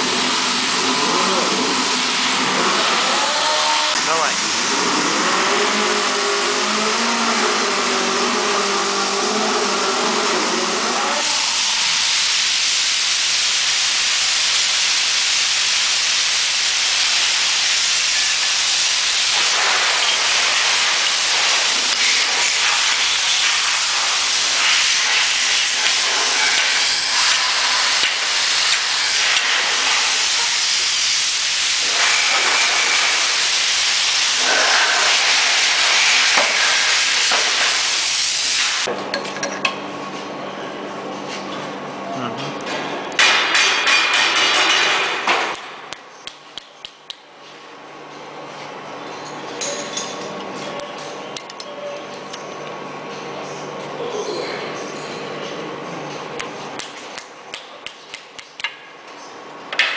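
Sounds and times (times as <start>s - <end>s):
loud steady hiss: 0.0s - 38.9s.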